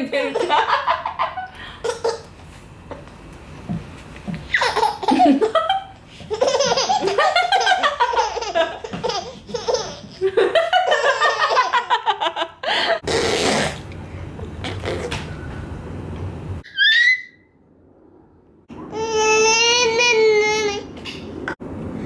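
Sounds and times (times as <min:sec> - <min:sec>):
baby laughing: 0:01.8 - 0:02.3, 0:04.5 - 0:12.1.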